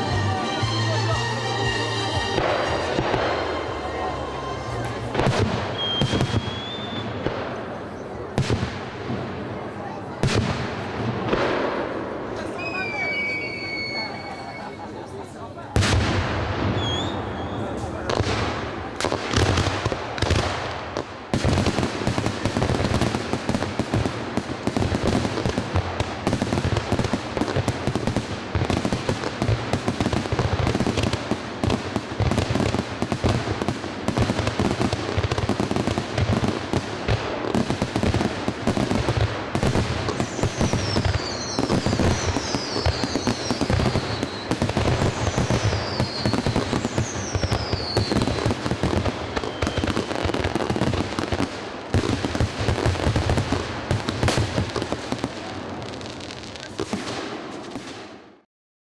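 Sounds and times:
fireworks bursting and crackling: 0.0s - 58.4s
falling firework whistles: 5.6s - 7.2s, 12.5s - 15.0s, 16.6s - 17.8s, 40.1s - 50.6s.

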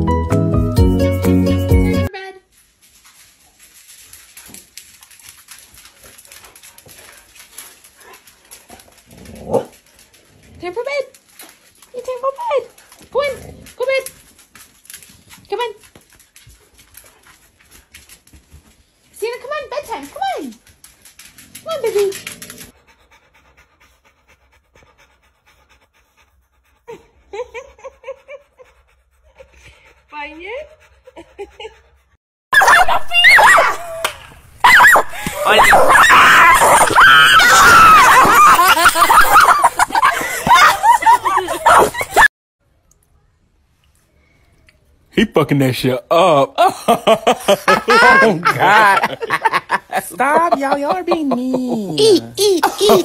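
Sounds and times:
dog panting: 2.9s - 32.2s, 47.1s - 53.0s.

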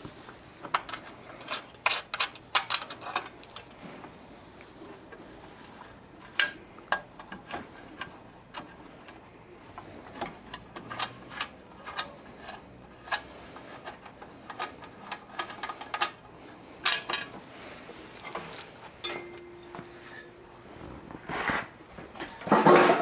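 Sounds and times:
metal nuts and bolts clinking: 22.2s - 23.0s.

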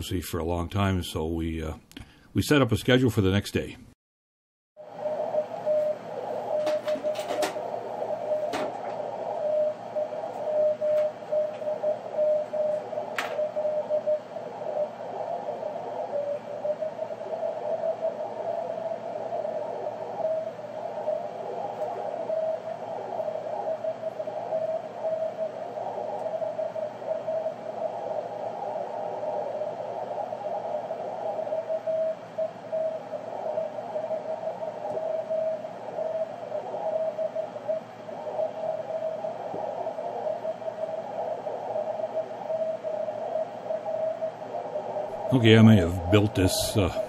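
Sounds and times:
receiver hiss: 4.8s - 47.0s
wavering radio tone: 4.8s - 47.0s.

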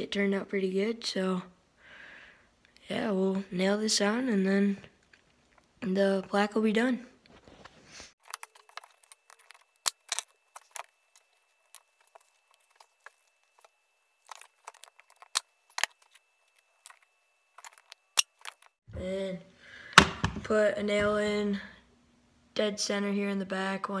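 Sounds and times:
faint steady high tone: 8.3s - 19.5s.

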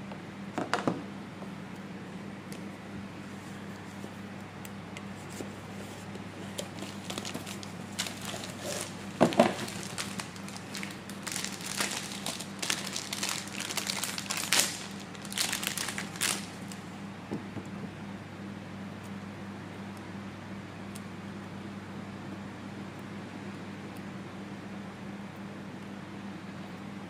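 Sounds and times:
steady low hum: 0.0s - 27.0s
crinkling and crackling: 3.3s - 16.9s.

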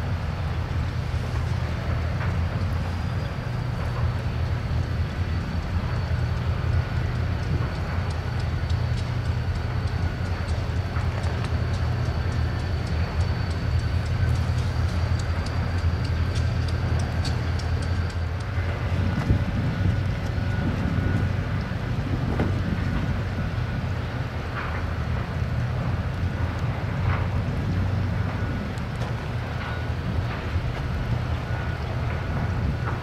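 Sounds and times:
diesel locomotive rumbling: 0.0s - 33.0s
train squeaks and knocks: 1.6s - 25.3s.

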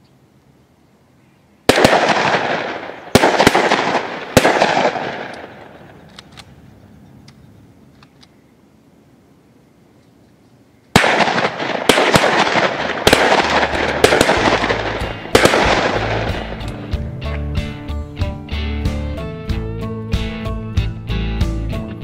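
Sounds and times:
shotgun blasts echoing: 1.7s - 6.4s, 10.9s - 16.9s
faint sharp clicks: 5.3s - 6.6s, 7.2s - 8.4s.

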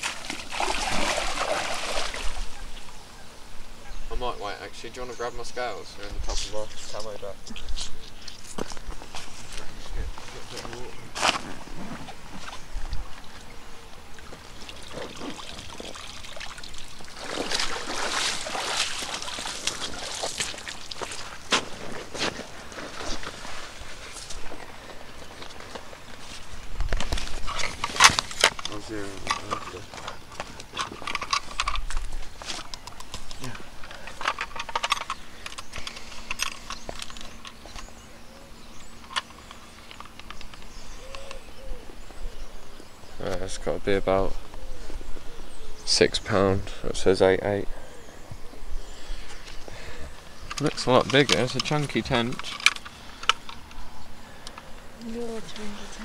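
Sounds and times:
water pouring and splashing: 0.0s - 2.5s, 14.2s - 21.5s
clicks and rustles of straps: 17.5s - 38.0s, 38.9s - 41.4s, 50.4s - 53.8s.

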